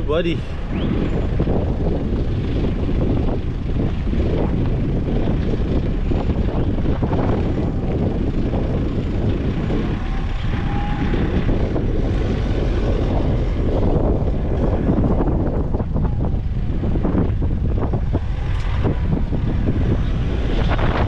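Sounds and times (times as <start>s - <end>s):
road and wind noise: 0.0s - 21.0s
vehicle rumble: 0.0s - 21.0s.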